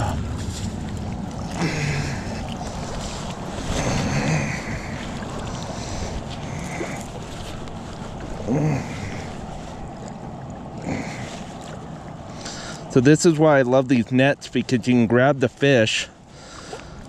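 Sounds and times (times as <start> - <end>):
wind buffeting microphone: 0.0 - 13.0
small waves lapping on shore: 0.0 - 17.0.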